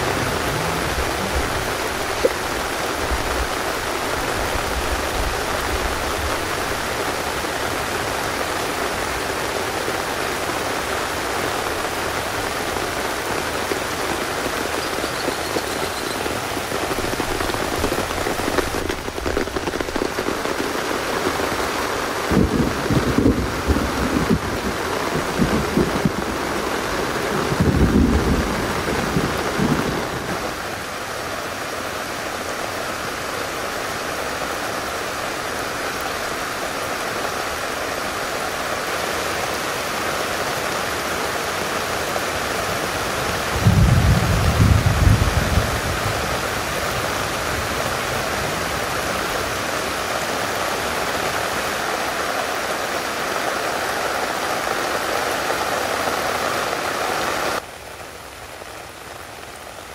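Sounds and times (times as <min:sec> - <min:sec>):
low rumbles: 0:00.0 - 0:03.5
heavy rain falling: 0:00.0 - 0:59.9.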